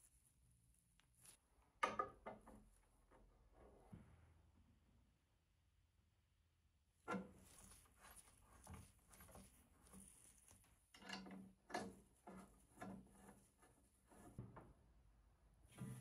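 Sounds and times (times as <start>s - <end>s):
metal fittings clicking and rubbing: 7.1s - 14.4s.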